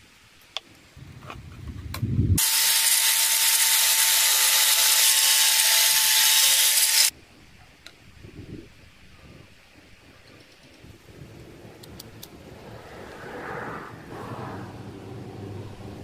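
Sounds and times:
angle grinder whining: 2.4s - 7.1s
low handling rumble: 11.0s - 16.0s.

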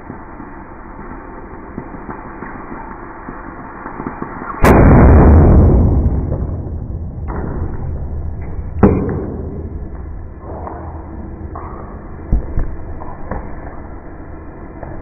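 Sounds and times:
noisy rush of air: 2.6s - 14.8s
sharp knocks: 8.8s - 9.8s.

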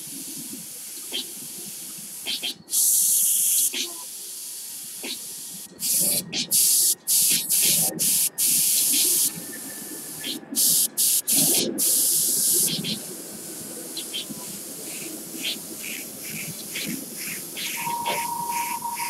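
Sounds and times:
faint puffs of air: 0.0s - 19.0s
airbrush hissing: 0.8s - 9.3s, 14.2s - 19.0s.

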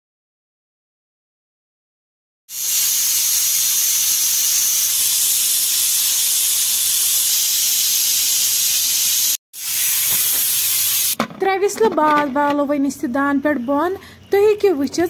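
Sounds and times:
pressure cooker hissing steam: 2.5s - 11.2s.

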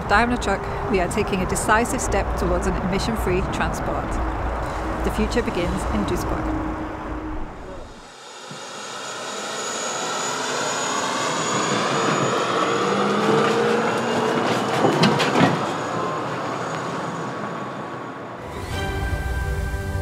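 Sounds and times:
whine rising in pitch: 6.3s - 14.6s.

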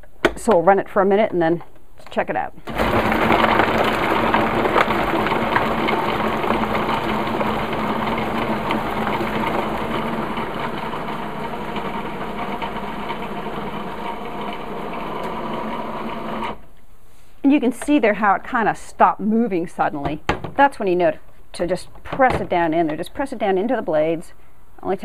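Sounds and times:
food processor chopping: 2.7s - 16.6s.

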